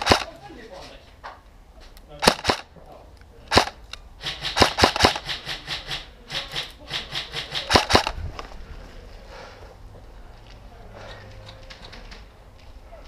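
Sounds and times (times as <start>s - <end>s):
airsoft gunshots: 0.0s - 0.3s, 2.2s - 2.7s, 3.5s - 8.2s.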